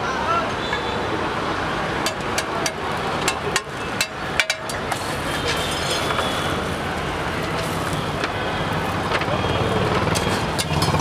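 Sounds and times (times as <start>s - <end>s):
street traffic noise: 0.0s - 11.0s
metal spatula scraping griddle: 4.6s - 6.8s.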